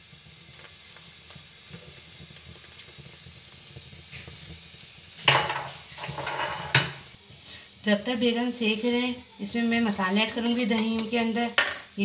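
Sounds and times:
charring skins crackling: 0.0s - 7.2s
gas burner flame hissing: 0.0s - 12.0s.

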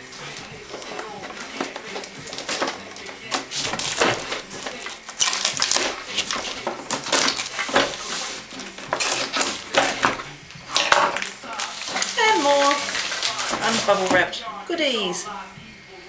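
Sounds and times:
scissors cutting packing tape: 0.0s - 14.3s
cardboard and tape crackling: 0.0s - 14.5s.

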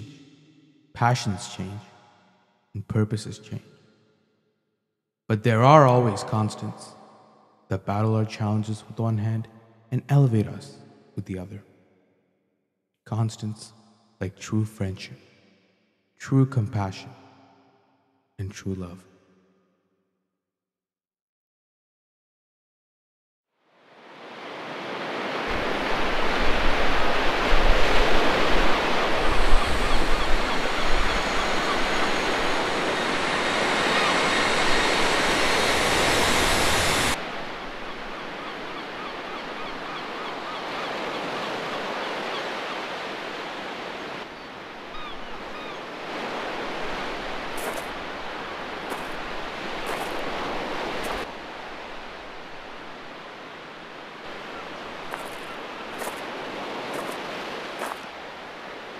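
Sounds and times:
wind and water rushing: 23.7s - 58.9s.

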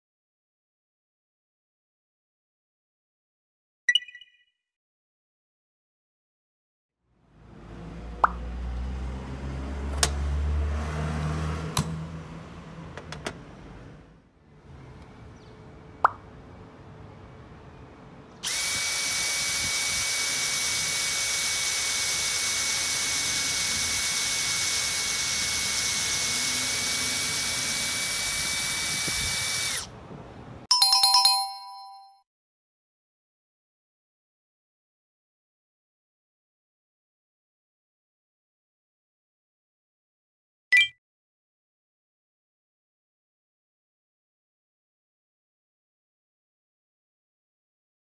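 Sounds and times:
electric drill whining: 18.4s - 30.0s
short ringing chime: 30.7s - 32.2s.

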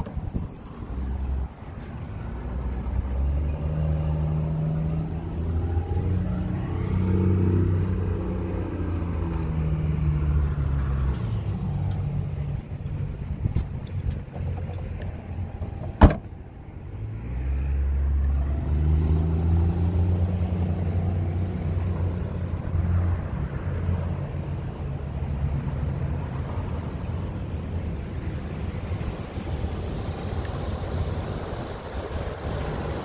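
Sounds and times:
car engine idling: 11.1s - 17.0s
car liftgate slamming: 15.6s - 16.4s.

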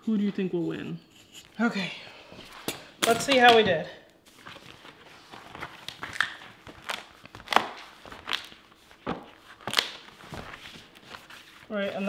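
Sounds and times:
paper board crackling: 4.3s - 12.0s.

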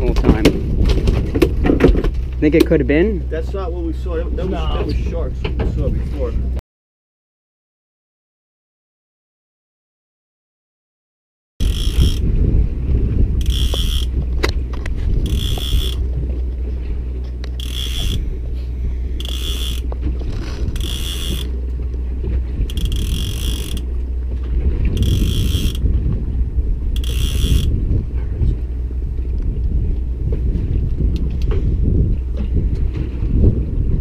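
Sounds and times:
steady low rumble: 0.0s - 6.6s, 11.6s - 34.0s
fishing reel ratcheting: 11.6s - 12.3s, 13.4s - 16.1s, 17.4s - 18.4s, 19.2s - 21.6s, 22.6s - 23.9s, 25.0s - 25.9s, 27.0s - 27.8s.

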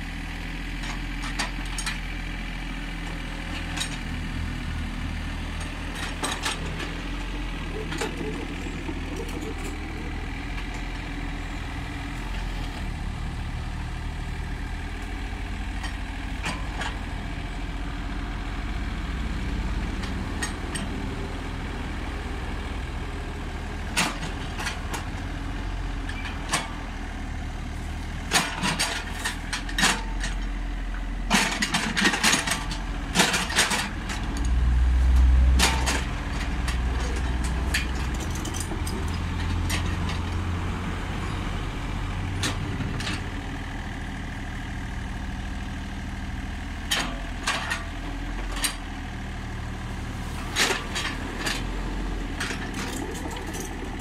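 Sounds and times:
diesel engine running: 0.0s - 54.0s
metal clanks and knocks: 35.5s - 40.3s.

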